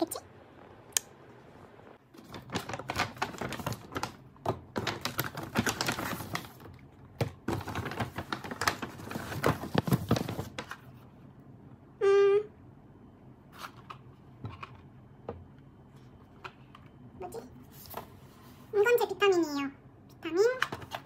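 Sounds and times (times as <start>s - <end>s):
cardboard and paper packaging rustling: 2.1s - 11.0s.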